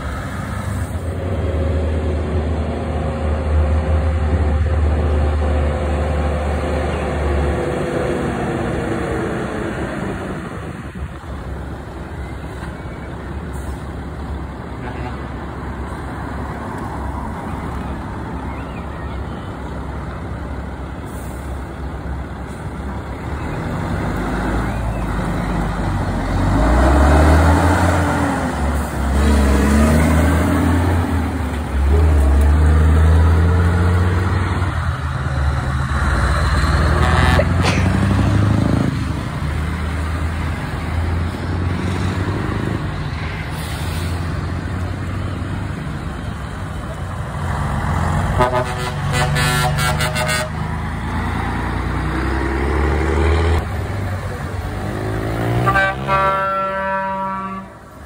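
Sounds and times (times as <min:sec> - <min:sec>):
truck diesel engines: 0:00.0 - 0:58.0
truck horn blasts: 0:14.8 - 0:15.3, 0:36.8 - 0:37.7, 0:48.3 - 0:50.6, 0:55.4 - 0:57.9.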